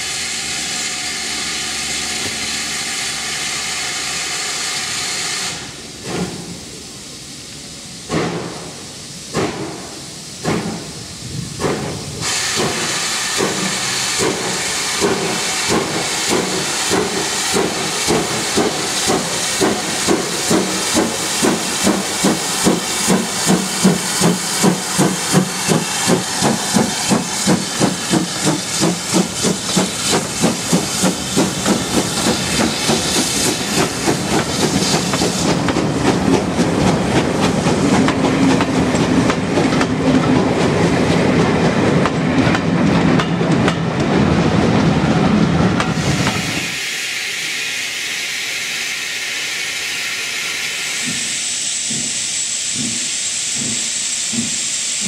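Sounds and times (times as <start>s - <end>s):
steam hissing: 0.0s - 55.0s
steam locomotive exhaust beats: 0.0s - 55.0s
train wheels clattering: 8.1s - 44.3s, 51.0s - 55.0s.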